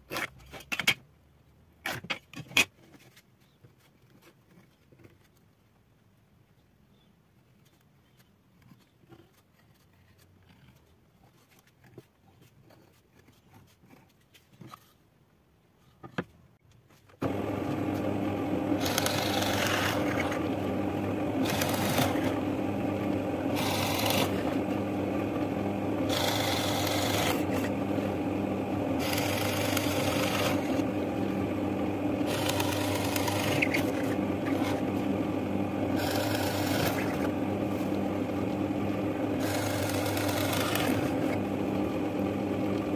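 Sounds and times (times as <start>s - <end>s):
pencil strokes: 7.5s - 15.0s
drill press boring into wood: 17.2s - 42.9s.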